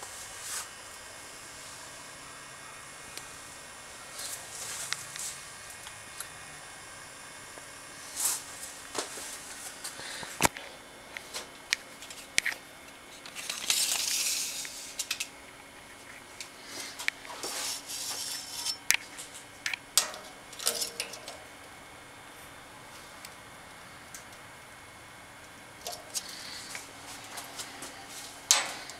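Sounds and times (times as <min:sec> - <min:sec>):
metallic clicks of wire cage: 0:18.6 - 0:21.5, 0:28.5 - 0:28.9.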